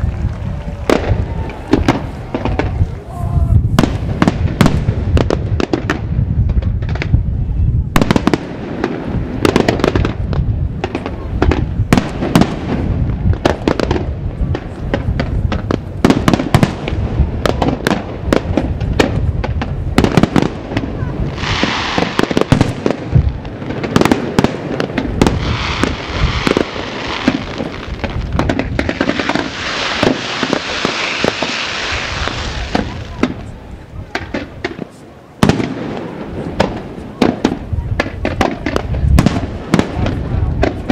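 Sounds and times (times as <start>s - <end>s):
fireworks bursting with bangs: 0.0s - 40.9s
steady hiss: 29.0s - 32.7s.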